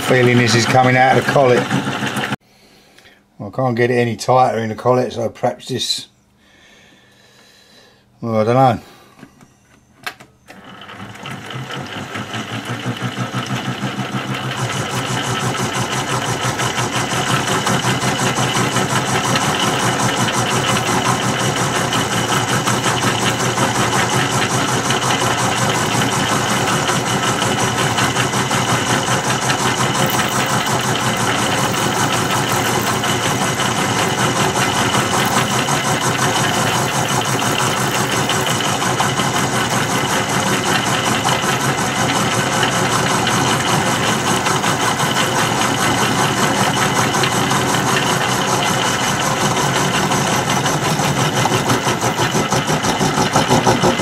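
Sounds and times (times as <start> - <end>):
milling machine cutting metal: 0.0 - 2.4, 10.5 - 54.0.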